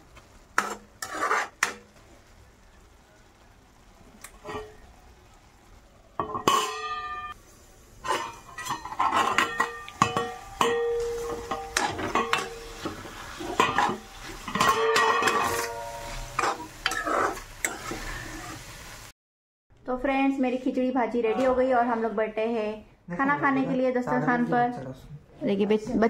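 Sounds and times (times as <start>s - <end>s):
metal spatula scraping steel pan: 0.6s - 1.9s, 8.0s - 18.7s
ringing metal clang: 9.4s - 12.6s, 14.6s - 16.4s.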